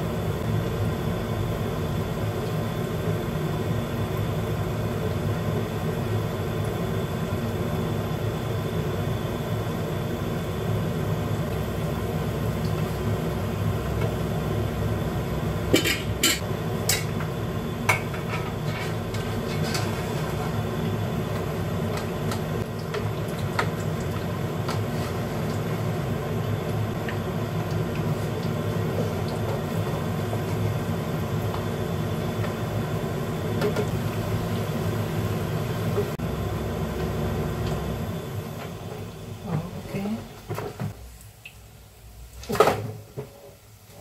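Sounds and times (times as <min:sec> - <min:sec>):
omelette frying in oil: 0:00.0 - 0:15.7, 0:16.4 - 0:40.0.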